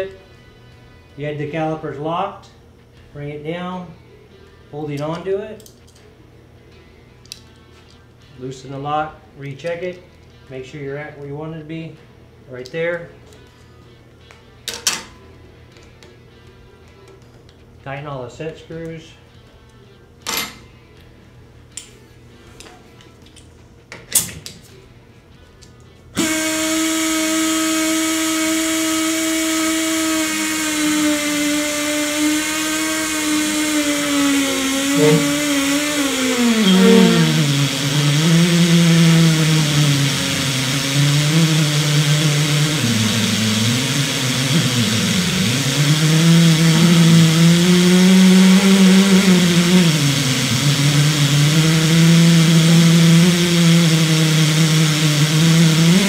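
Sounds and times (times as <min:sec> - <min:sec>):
pneumatic tool whining: 0:26.2 - 0:56.0.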